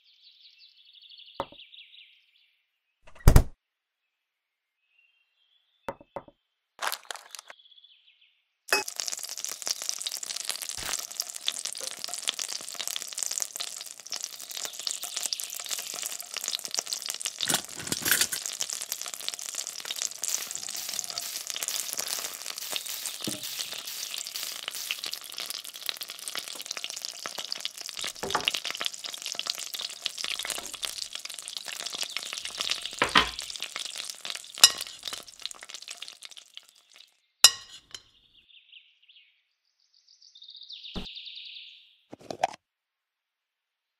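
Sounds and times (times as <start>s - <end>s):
sausage sizzling in oil: 6.8s - 7.5s, 8.7s - 38.0s.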